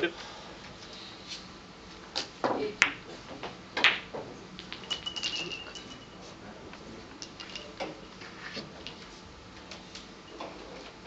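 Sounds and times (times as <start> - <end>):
cue knocking billiard balls: 2.4 - 6.0
billiard balls clicking and rolling: 2.5 - 8.0.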